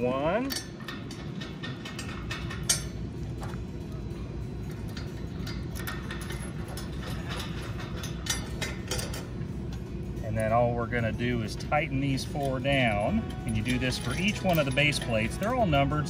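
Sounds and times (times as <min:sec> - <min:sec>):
metallic clicks of washers and nuts: 0:00.4 - 0:03.0, 0:04.6 - 0:10.6, 0:12.2 - 0:15.7.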